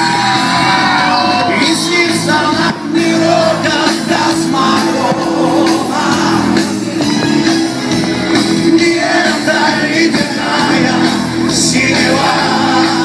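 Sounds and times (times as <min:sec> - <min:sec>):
crowd shouting and whooping: 0:00.0 - 0:13.0
live band with singing: 0:00.0 - 0:13.0.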